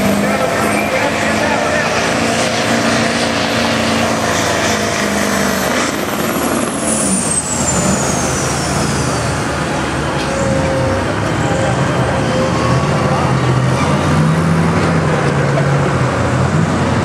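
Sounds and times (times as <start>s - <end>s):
turbocharger whine winding down: 0.0s - 13.3s
diesel engine under full load: 0.0s - 17.0s.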